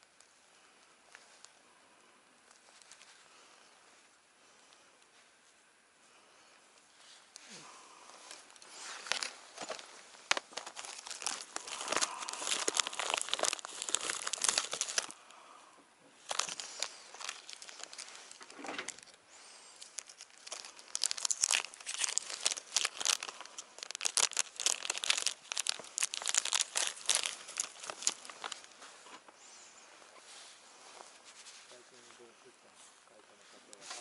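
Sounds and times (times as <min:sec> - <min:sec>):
plastic packaging crinkling: 0:02.4 - 0:03.2, 0:08.0 - 0:15.3, 0:16.2 - 0:29.2.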